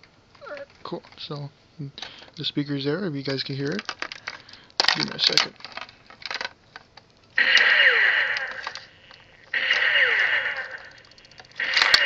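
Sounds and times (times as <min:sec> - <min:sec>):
toy electronic firing sound: 0:07.4 - 0:12.0.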